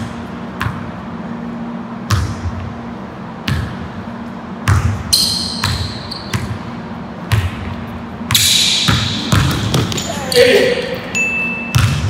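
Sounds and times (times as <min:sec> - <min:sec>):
basketball bouncing on gym floor: 0:00.0 - 0:01.0, 0:02.0 - 0:02.8, 0:03.4 - 0:04.0, 0:04.6 - 0:10.4, 0:11.6 - 0:12.0
sneaker squeak: 0:04.7 - 0:12.0.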